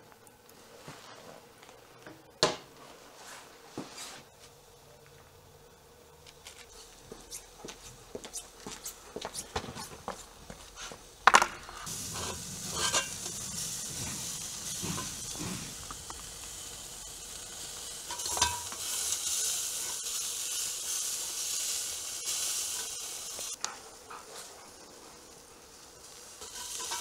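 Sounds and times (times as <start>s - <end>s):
meat juices sizzling: 6.1s - 27.0s
metal skewers clanking: 11.8s - 16.0s, 18.0s - 19.0s, 26.4s - 27.0s.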